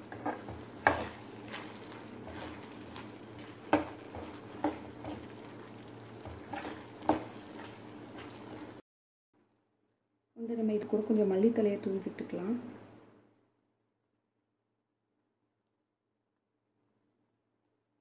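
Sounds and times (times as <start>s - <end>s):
metal spatula scraping a pan: 0.0s - 8.7s
gravy sizzling and bubbling in pan: 0.0s - 8.8s.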